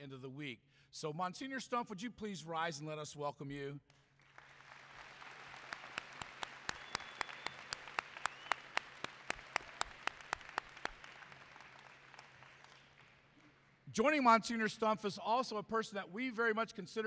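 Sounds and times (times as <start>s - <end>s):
close sharp hand claps: 3.9s - 13.8s
audience applauding: 4.2s - 13.7s.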